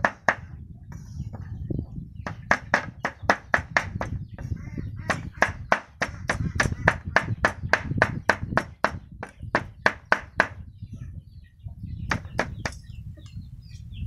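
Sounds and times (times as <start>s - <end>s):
cleaver chopping on wooden block: 5.1s - 10.6s.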